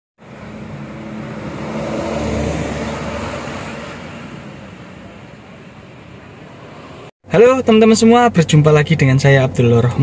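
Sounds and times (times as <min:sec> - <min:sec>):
vehicle engine passing by: 0:00.2 - 0:05.5.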